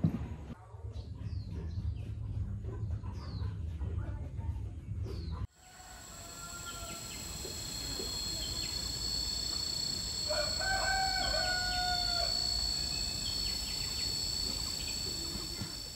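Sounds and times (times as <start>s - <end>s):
rooster crowing: 5.6s - 15.9s
high-pitched drone: 6.0s - 15.9s.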